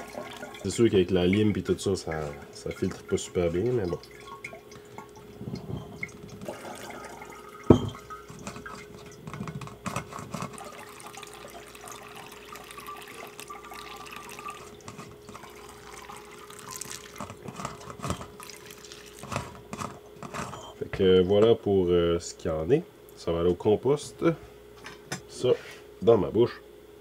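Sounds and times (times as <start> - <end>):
liquid trickling and dripping: 0.0 - 20.1.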